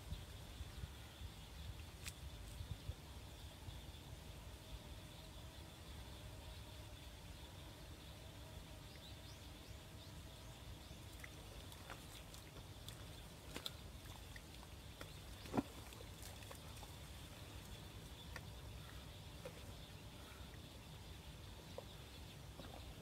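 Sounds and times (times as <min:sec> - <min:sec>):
mud squelching: 0:11.1 - 0:19.8.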